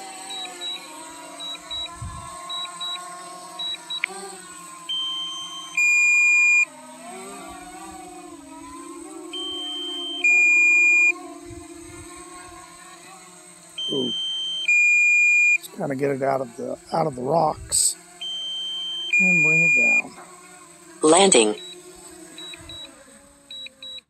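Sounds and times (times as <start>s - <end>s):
drone propellers humming: 0.0s - 20.3s
two-part electronic warning beep: 4.9s - 6.6s, 9.4s - 11.2s, 13.8s - 15.6s, 18.2s - 20.1s.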